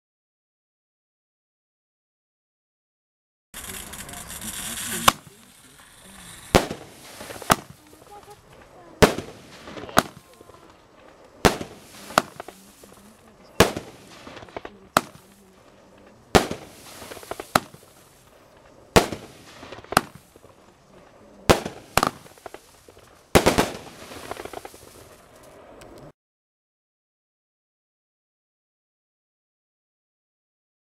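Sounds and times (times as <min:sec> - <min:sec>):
firework bangs: 0:03.6 - 0:26.1.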